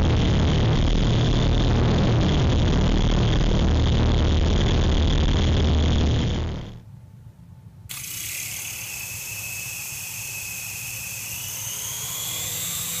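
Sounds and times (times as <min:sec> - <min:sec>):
toy helicopter motors whining: 0:07.9 - 0:13.0.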